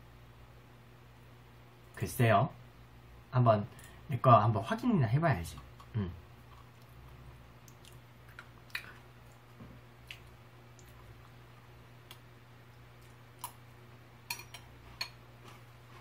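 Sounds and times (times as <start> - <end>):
faint low hum: 0.0 - 16.0
metal spoon clinking on ceramic bowl: 14.3 - 15.2.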